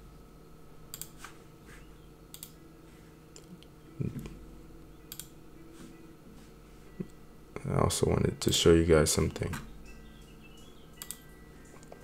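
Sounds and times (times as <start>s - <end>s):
mouse clicks: 11.0s - 11.2s.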